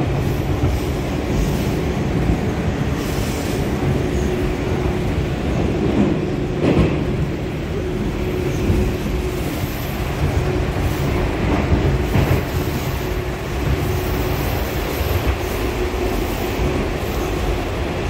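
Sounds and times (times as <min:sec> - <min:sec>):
wheels rumbling on rail: 0:00.0 - 0:18.0.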